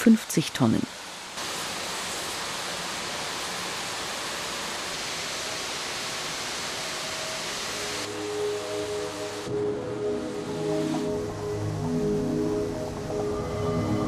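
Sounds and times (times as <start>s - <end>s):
cutting torches hissing: 1.0s - 12.2s
faint music: 7.0s - 14.0s.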